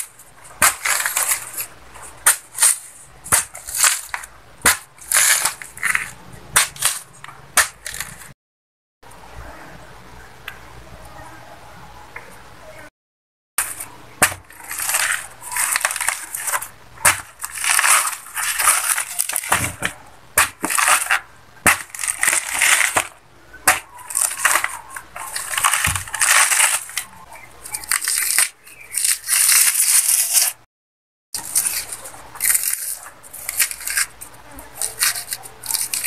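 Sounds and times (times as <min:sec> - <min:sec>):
plant fibres ripping and crunching: 0:00.0 - 0:08.3, 0:13.6 - 0:30.6, 0:31.4 - 0:36.0.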